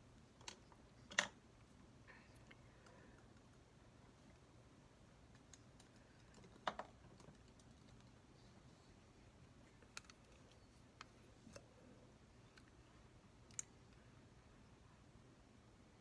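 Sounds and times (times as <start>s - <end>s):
faint clicks and taps: 5.2s - 8.3s.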